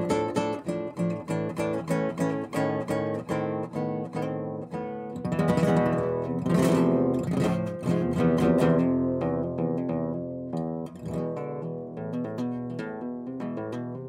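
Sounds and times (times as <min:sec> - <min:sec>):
acoustic guitar playing: 0:00.0 - 0:14.0.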